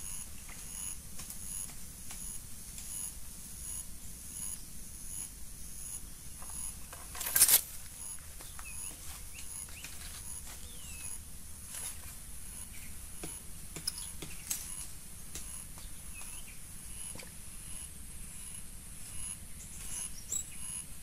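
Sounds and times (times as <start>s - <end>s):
small bird chirps: 8.0s - 11.2s, 18.4s - 20.9s.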